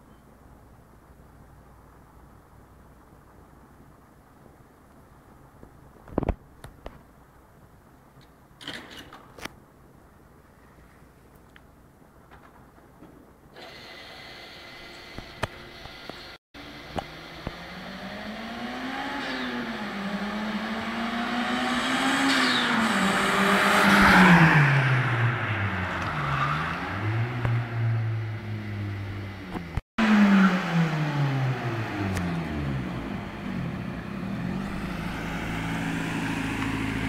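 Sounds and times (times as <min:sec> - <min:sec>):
car engine accelerating hard: 0:16.6 - 0:37.0.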